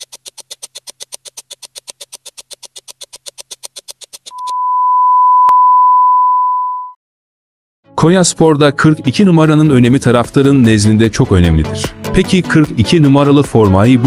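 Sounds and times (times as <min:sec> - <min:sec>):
fast timer ticking: 0:00.0 - 0:04.4
steady single-pitch beep: 0:04.3 - 0:07.0.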